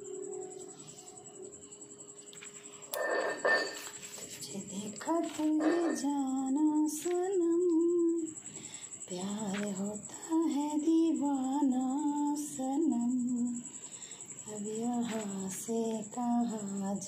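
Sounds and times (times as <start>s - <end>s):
woman humming: 4.5s - 8.4s.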